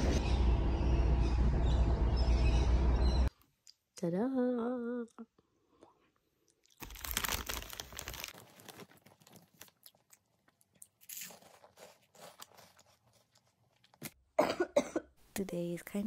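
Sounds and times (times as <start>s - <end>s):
plastic snack bag crinkling: 6.6s - 14.1s.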